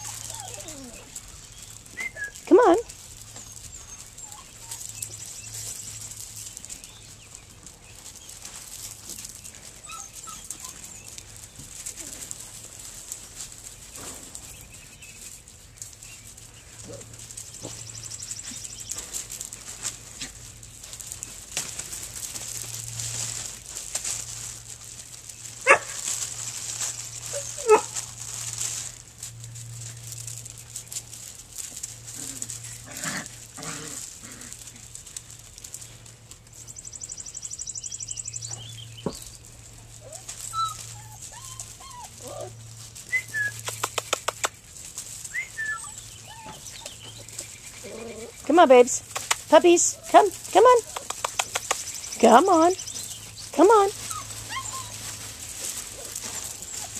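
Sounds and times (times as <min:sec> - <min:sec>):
puppy yelps: 0:00.0 - 0:01.1, 0:03.9 - 0:04.8, 0:09.8 - 0:10.8, 0:27.3 - 0:28.0, 0:45.4 - 0:46.9, 0:54.0 - 0:55.1
puppies scuffling over gravel: 0:00.0 - 0:56.9.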